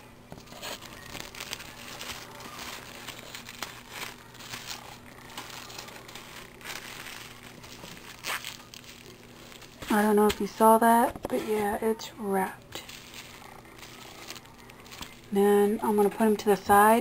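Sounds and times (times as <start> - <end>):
plastic wrap crinkling: 0.3 - 17.0.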